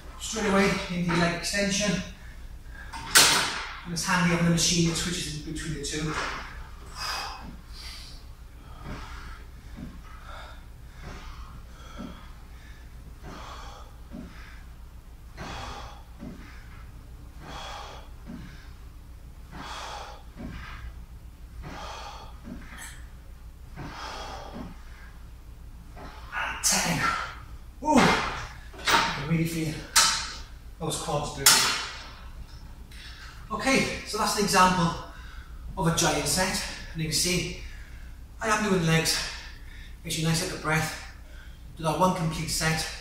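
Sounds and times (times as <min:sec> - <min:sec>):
steady low hum: 0:00.0 - 0:43.0
man breathing hard: 0:06.5 - 0:21.0, 0:21.6 - 0:25.3, 0:35.1 - 0:35.7.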